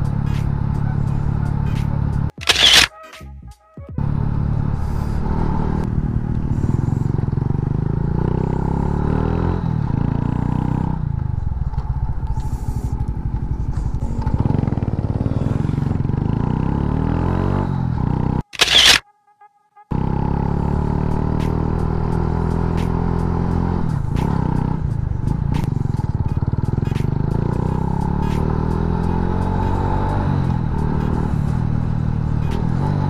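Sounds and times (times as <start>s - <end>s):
motorcycle engine running: 0.0s - 2.8s, 4.0s - 18.9s, 19.9s - 33.0s
camera shutter click: 2.4s - 3.2s, 18.6s - 19.0s.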